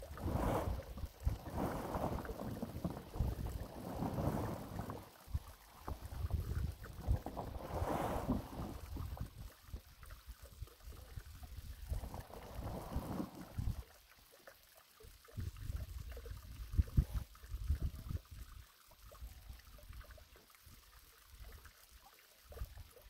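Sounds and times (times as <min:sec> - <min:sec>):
wind buffeting microphone: 0:00.0 - 0:09.5.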